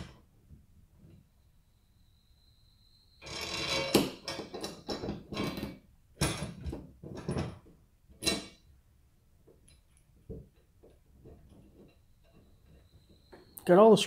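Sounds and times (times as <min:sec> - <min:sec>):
metallic rattles and scrapes: 0:03.2 - 0:08.7.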